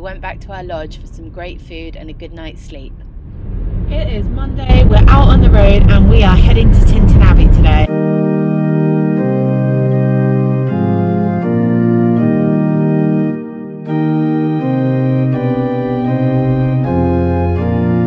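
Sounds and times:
organ chords: 4.7s - 18.0s.

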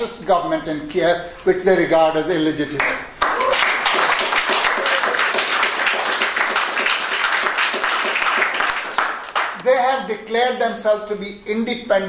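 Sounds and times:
audience applauding: 2.8s - 9.6s.

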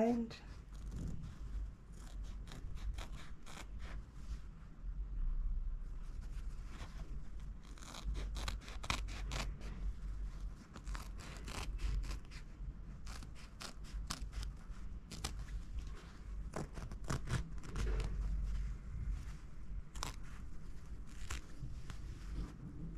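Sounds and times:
scissors snipping fabric: 2.0s - 3.8s, 7.6s - 9.6s, 10.7s - 12.4s, 13.0s - 15.4s, 16.5s - 18.1s, 21.0s - 21.6s.

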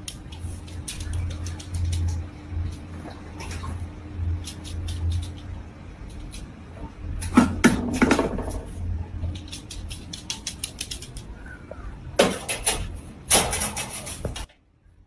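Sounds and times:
wire crate rattling: 12.2s - 14.5s.

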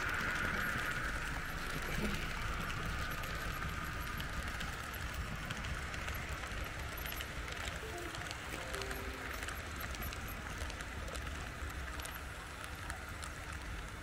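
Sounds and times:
model train wheels rumbling: 0.0s - 14.0s.

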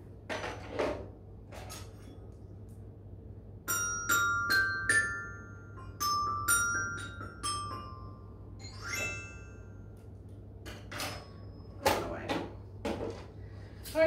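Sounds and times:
glockenspiel notes: 3.7s - 10.0s.

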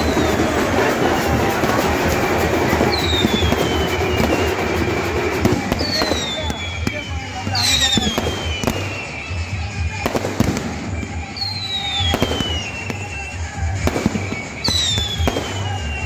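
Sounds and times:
falling firework whistles: 0.0s - 16.0s
firework bangs and crackling: 0.0s - 16.0s.

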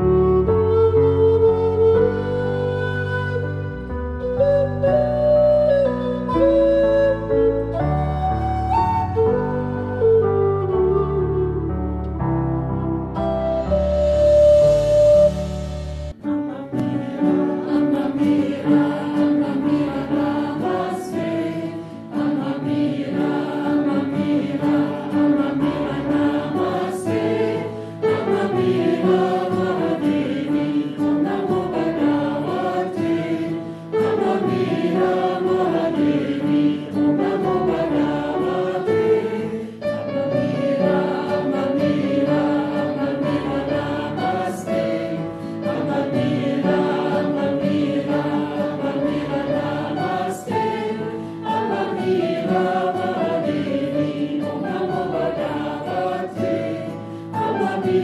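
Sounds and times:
choir singing slow song: 14.3s - 58.0s.

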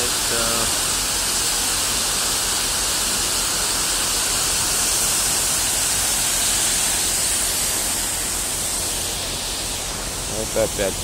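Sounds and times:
waterfall hissing: 0.0s - 11.0s.

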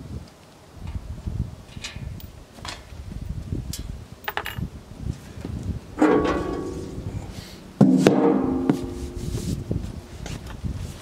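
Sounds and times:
sheet metal cover clanging: 6.0s - 9.5s.

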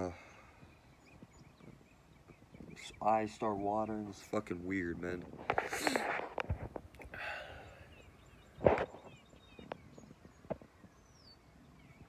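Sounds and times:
faint bird chirps: 7.0s - 12.0s.

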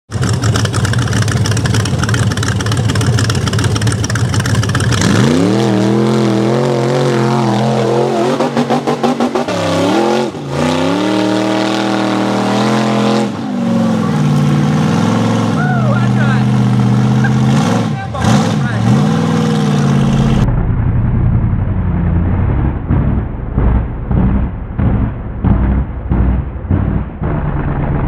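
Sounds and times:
vehicle engine revving: 0.1s - 28.0s.

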